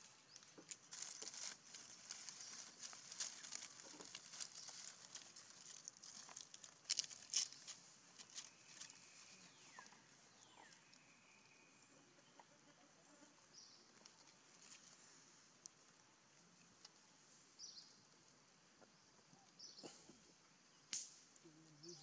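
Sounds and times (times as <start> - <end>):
dry leaves rustling and crackling: 0.0 - 9.9.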